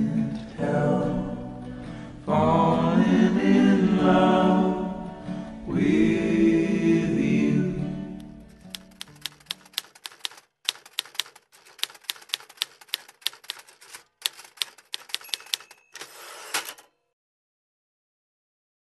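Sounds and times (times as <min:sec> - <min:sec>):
typewriter carriage return rattle: 0:08.5 - 0:16.9
typewriter keys striking: 0:08.5 - 0:16.9
typewriter bell ring: 0:08.9 - 0:17.0.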